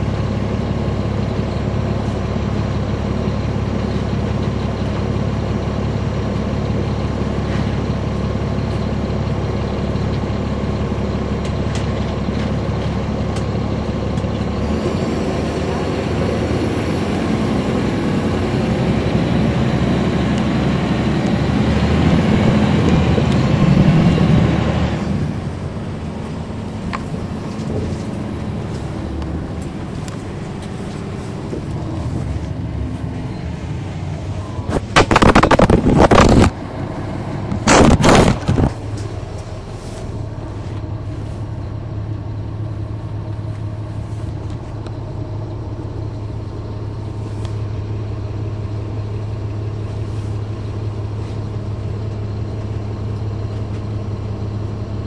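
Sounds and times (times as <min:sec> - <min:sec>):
bus diesel engine running: 0:00.0 - 0:55.0.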